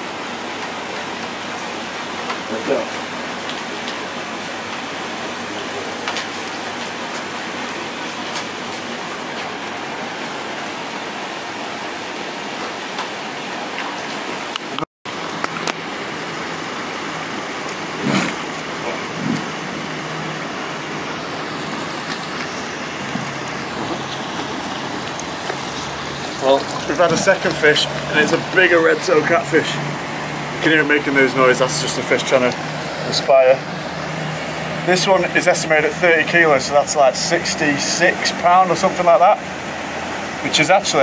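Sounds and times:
rushing background noise: 1.4s - 41.0s
fish splashing at water surface: 17.7s - 30.6s.

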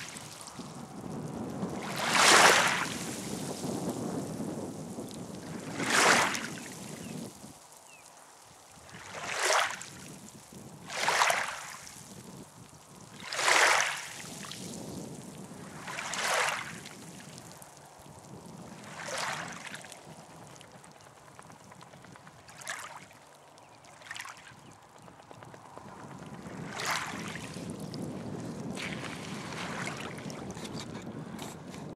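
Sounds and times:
small waves lapping shore: 0.0s - 4.0s, 5.4s - 10.2s, 10.8s - 12.4s, 13.1s - 14.8s, 15.6s - 18.0s, 18.7s - 20.4s, 22.4s - 24.9s, 26.6s - 28.0s, 28.7s - 30.8s.

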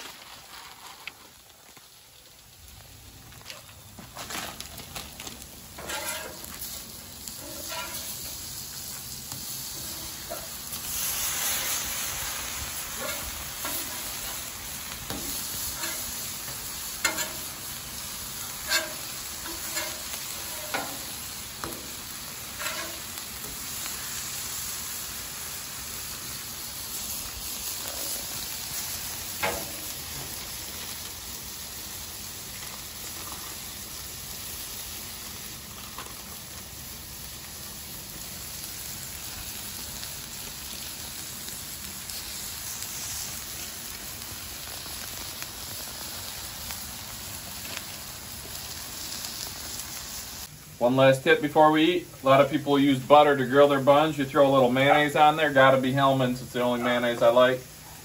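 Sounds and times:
burger patties sizzling on griddle: 0.0s - 58.0s
metal spatula scraping and tapping: 5.8s - 6.5s, 7.4s - 8.1s, 15.1s - 16.0s, 17.0s - 17.4s, 18.7s - 21.0s, 22.6s - 23.0s.

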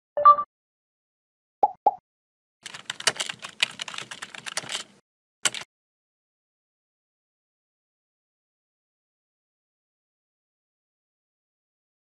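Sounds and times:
keyboard key clicks: 2.7s - 5.7s.

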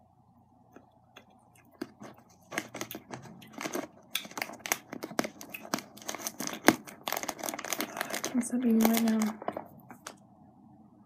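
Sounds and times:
plastic bag crinkling: 1.8s - 10.2s.

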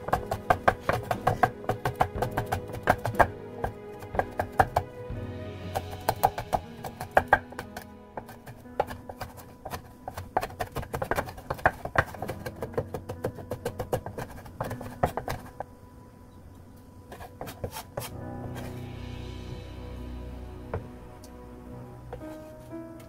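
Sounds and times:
background music: 0.0s - 23.0s
knife chopping on wooden board: 0.1s - 4.9s, 8.2s - 15.6s.

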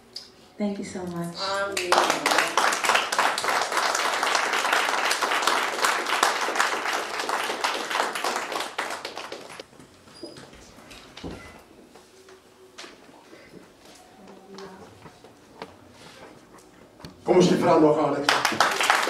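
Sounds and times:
audience applauding: 1.6s - 9.6s, 18.1s - 19.0s.

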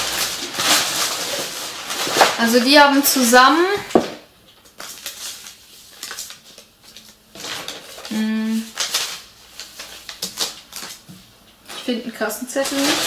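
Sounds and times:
rustling: 0.0s - 2.7s
shoes and packaging handled: 0.0s - 13.0s.

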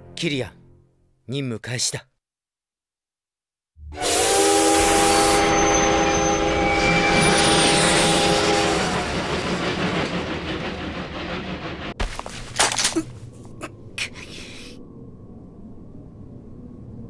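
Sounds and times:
steam locomotive whistle: 3.8s - 9.6s.

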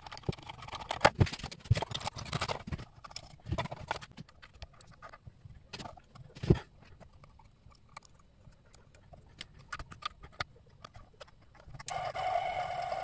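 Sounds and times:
small electric motor whine: 11.9s - 13.0s.

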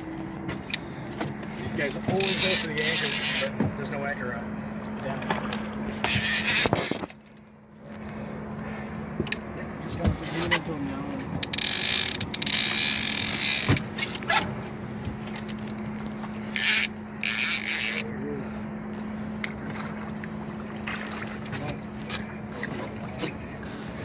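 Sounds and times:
boat engine idling: 0.0s - 24.0s
fishing reel cranking: 2.2s - 3.5s, 6.0s - 7.0s, 11.4s - 14.0s, 16.5s - 18.0s
water splashing: 4.8s - 7.2s, 19.4s - 24.0s.

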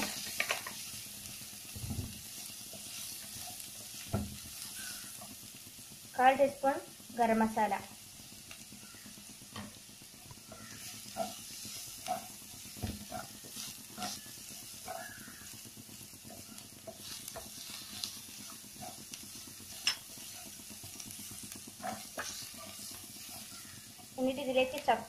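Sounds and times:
spatula scraping and tapping pan: 0.0s - 0.9s, 9.5s - 15.6s, 16.2s - 24.9s
vegetables sizzling in a frying pan: 0.0s - 25.0s.

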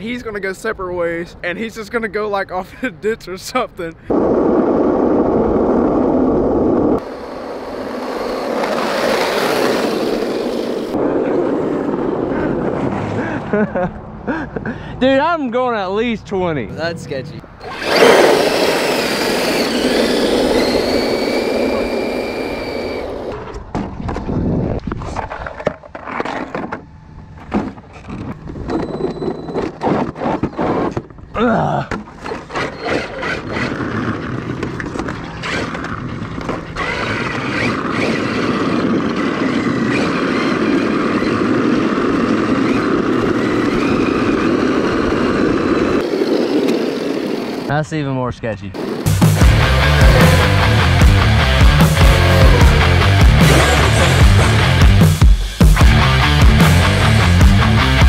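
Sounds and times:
skateboard wheels on asphalt: 4.1s - 13.9s, 17.5s - 31.3s, 31.9s - 54.6s
electric motor whine: 17.6s - 23.4s.

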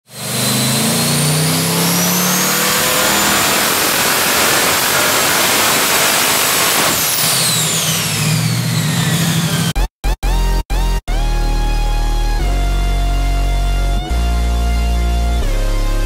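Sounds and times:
engine running hard: 0.0s - 9.8s
turbo whine: 0.0s - 10.4s.

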